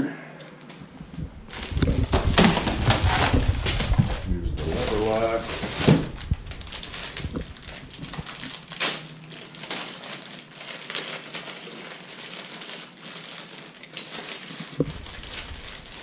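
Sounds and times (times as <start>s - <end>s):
plastic bag crinkling: 1.2s - 16.0s.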